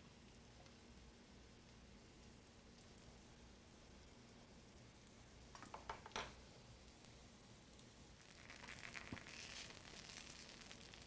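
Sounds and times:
food sizzling in oil: 0:06.3 - 0:11.0.

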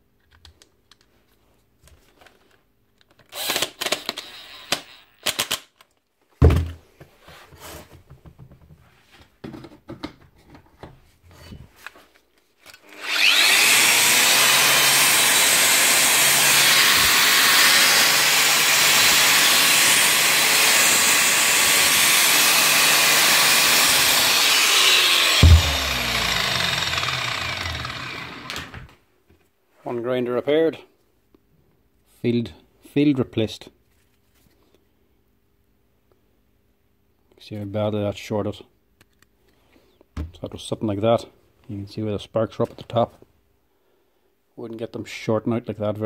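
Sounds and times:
angle grinder motor running: 0:03.4 - 0:05.1, 0:12.8 - 0:28.9.

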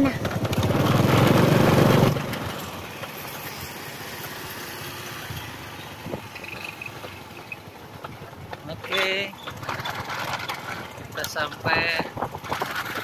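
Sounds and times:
motorcycle engine running: 0:00.0 - 0:13.0
road noise: 0:00.0 - 0:13.0.

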